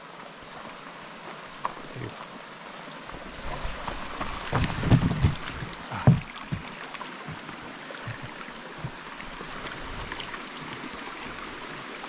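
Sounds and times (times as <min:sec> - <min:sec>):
footsteps on dirt trail: 0:00.4 - 0:02.4, 0:03.0 - 0:10.4.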